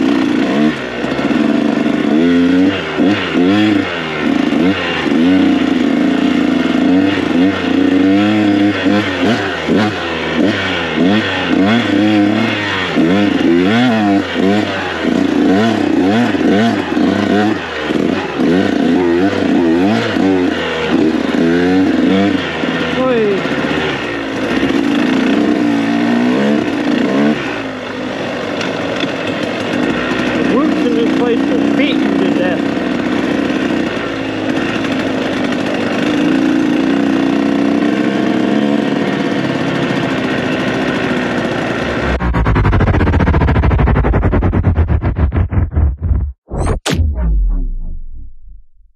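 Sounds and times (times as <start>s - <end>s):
dirt bike engine revving: 0.0s - 46.4s
steady rush of noise: 41.9s - 46.4s.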